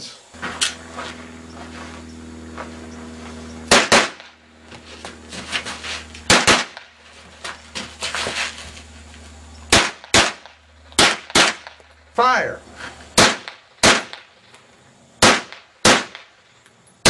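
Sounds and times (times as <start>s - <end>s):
pistol gunshots: 3.7s - 4.4s, 6.3s - 6.9s, 9.7s - 11.8s, 13.2s - 14.3s, 15.2s - 16.3s
faint sharp cracks: 13.2s - 16.8s.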